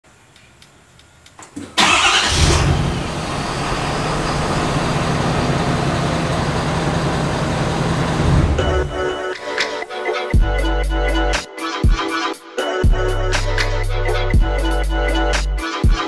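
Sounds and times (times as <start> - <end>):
diesel engine starting and idling: 1.8 - 9.1.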